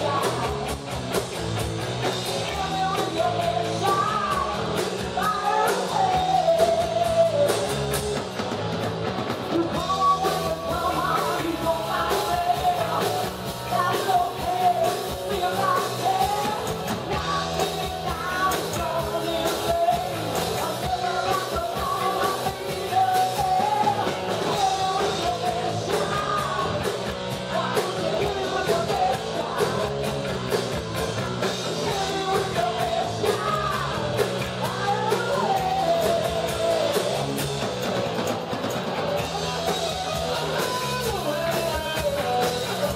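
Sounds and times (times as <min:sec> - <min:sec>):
woman singing: 0:00.0 - 0:00.7, 0:02.4 - 0:07.8, 0:09.5 - 0:30.0, 0:31.8 - 0:37.2
bass guitar: 0:00.0 - 0:42.9
drum kit: 0:00.0 - 0:42.9
electric guitar: 0:00.0 - 0:42.9.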